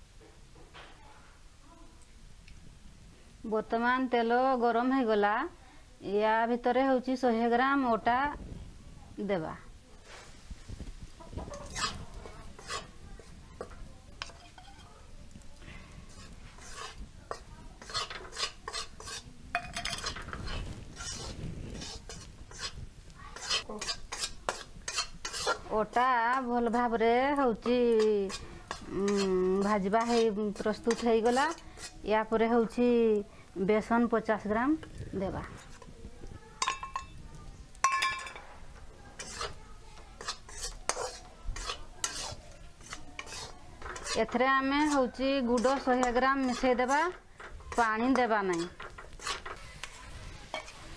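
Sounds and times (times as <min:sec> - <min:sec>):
metal spatula scraping pan: 0:11.2 - 0:15.0, 0:15.6 - 0:32.8, 0:33.8 - 0:36.0, 0:37.8 - 0:39.6, 0:40.2 - 0:50.9.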